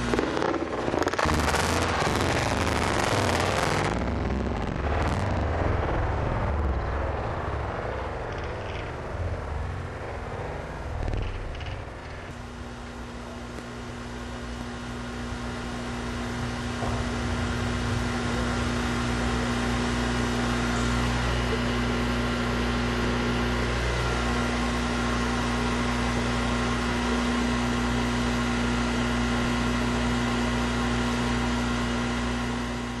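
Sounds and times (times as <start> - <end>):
low rumble: 0.0 - 13.4, 15.2 - 21.8
machine hum: 0.0 - 33.0.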